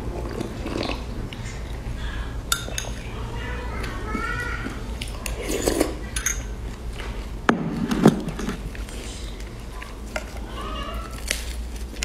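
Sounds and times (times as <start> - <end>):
spoon clinking against ceramic bowl: 2.5 - 3.1, 5.2 - 6.6.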